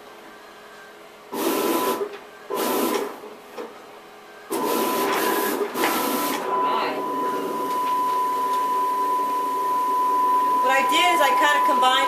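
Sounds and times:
plotter motors whirring: 1.3s - 3.3s, 4.5s - 12.0s.

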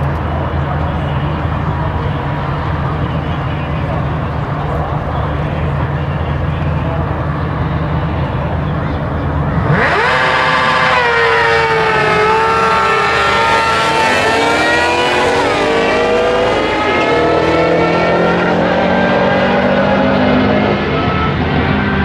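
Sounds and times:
car engine accelerating: 0.0s - 22.0s
motorcycle engine accelerating: 9.2s - 22.0s.

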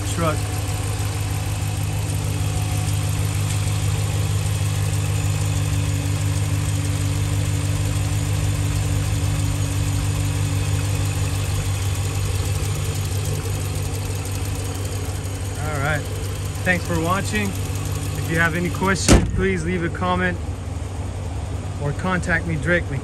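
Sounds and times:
car engine idling: 0.0s - 23.0s.

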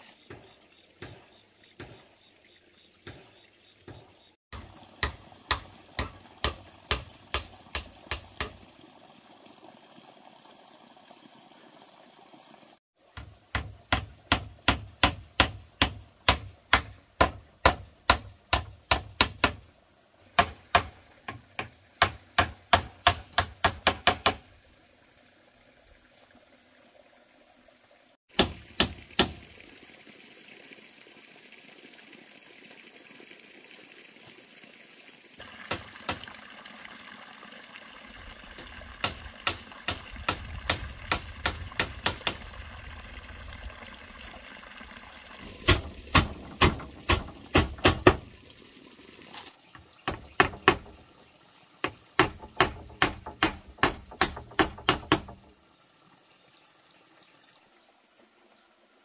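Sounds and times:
hand tool striking bamboo: 4.6s - 8.6s, 13.2s - 19.6s, 20.4s - 24.4s, 28.4s - 29.4s, 39.0s - 42.4s, 45.6s - 48.2s, 50.0s - 51.0s, 51.8s - 55.4s.

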